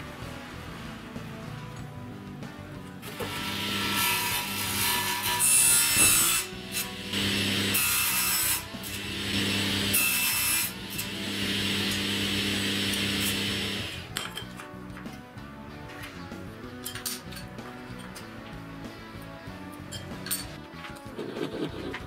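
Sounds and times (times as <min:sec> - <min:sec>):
circular saw cutting wood: 0:03.0 - 0:14.1
saw motor hum: 0:03.1 - 0:04.9, 0:05.6 - 0:14.1.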